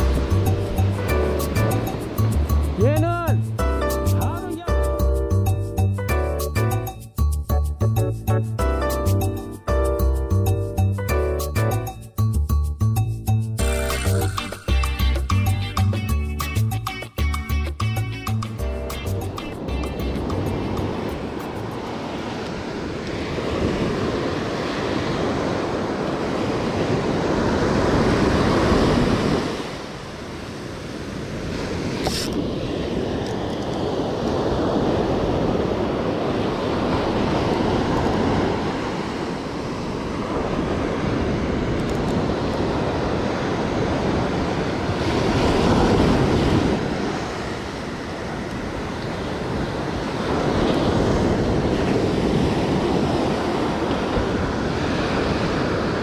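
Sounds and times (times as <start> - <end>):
surf breaking on beach: 19.4 - 56.0
wind buffeting microphone: 19.6 - 56.0.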